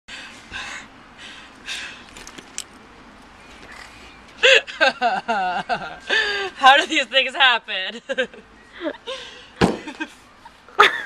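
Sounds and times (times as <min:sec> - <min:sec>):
woman laughing loudly: 0:10.8 - 0:11.0.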